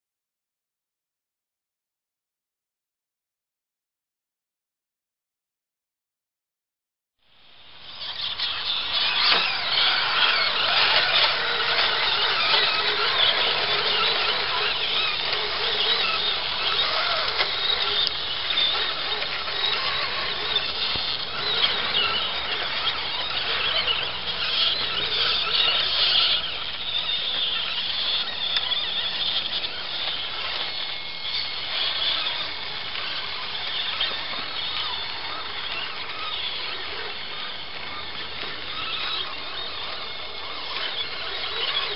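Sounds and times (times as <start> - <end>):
electric motor and gears whining: 8.1 - 41.9
tyres churning through mud: 8.2 - 41.9.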